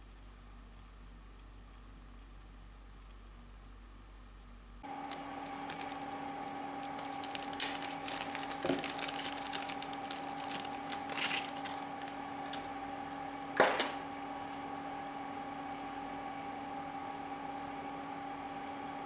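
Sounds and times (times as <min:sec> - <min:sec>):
steady two-tone hum: 0:00.0 - 0:19.0
plastic bag rustling and crinkling: 0:05.0 - 0:14.6.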